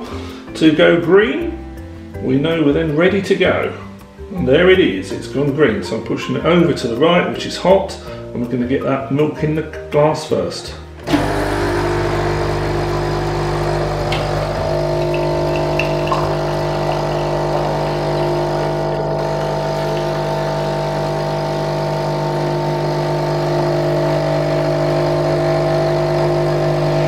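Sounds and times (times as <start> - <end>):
capsule machine pump drone: 11.0 - 27.0.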